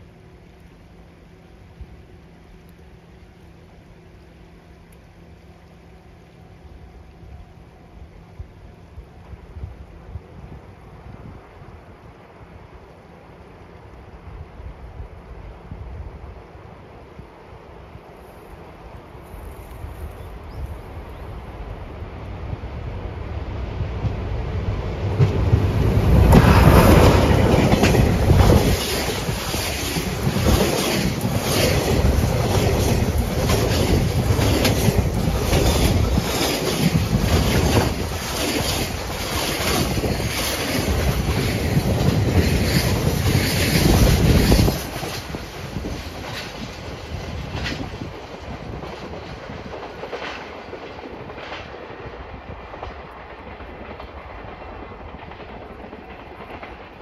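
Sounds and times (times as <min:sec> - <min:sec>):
diesel locomotive engine passing: 0:00.0 - 0:57.0
wagons clattering over rail joints: 0:26.2 - 0:51.7.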